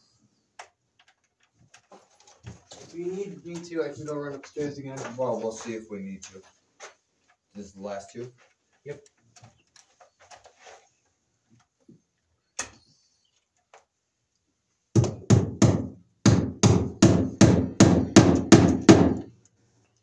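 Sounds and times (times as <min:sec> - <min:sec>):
hammer striking staples into wood: 0:15.0 - 0:19.3.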